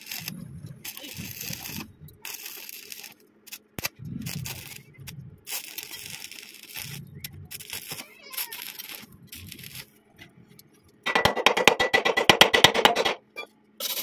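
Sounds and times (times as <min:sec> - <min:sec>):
welding arc crackling and hissing: 0:00.0 - 0:11.0, 0:13.8 - 0:14.0.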